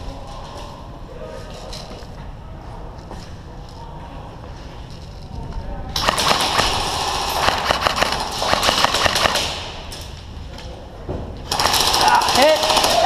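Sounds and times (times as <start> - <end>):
airsoft guns firing bursts: 6.0 - 9.9, 11.5 - 13.0.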